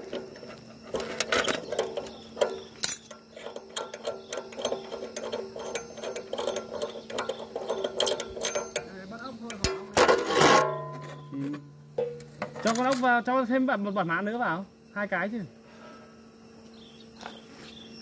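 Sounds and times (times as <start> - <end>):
clicks and metallic clinks of tools: 0.0 - 13.2
steady low hum: 0.0 - 18.0.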